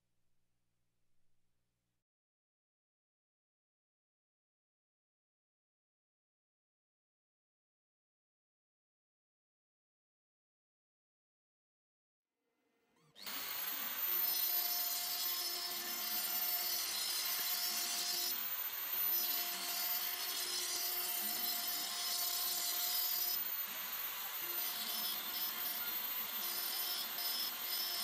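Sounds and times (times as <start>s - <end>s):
router spindle whine: 13.0s - 28.0s.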